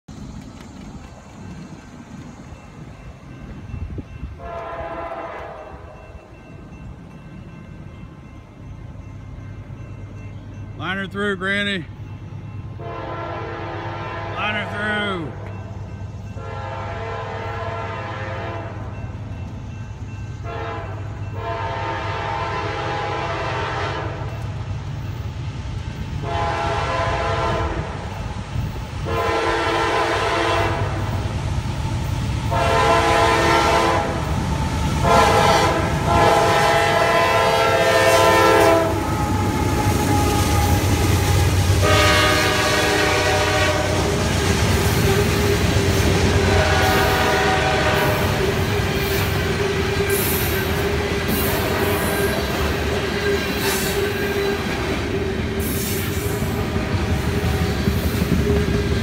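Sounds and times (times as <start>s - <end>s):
locomotive air horn blasts: 4.4s - 6.0s, 12.8s - 14.8s, 16.4s - 18.8s, 20.4s - 24.3s, 26.2s - 28.0s, 29.0s - 31.2s, 32.5s - 34.3s, 35.0s - 44.2s, 46.3s - 48.9s, 49.6s - 52.4s.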